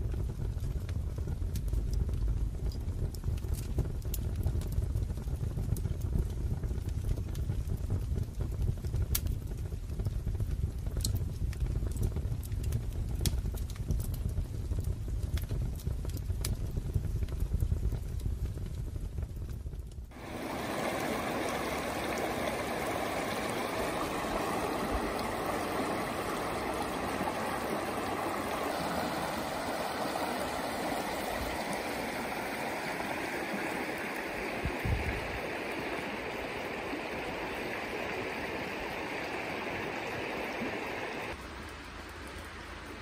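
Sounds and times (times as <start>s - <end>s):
river babbling over pebbles: 20.1s - 43.0s.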